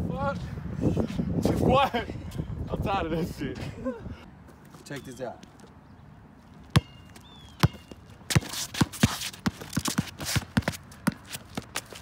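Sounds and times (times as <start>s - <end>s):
footsteps and shoe scuffs on concrete: 4.4s - 5.8s, 6.4s - 12.0s
basketball bouncing on concrete: 6.6s - 12.0s.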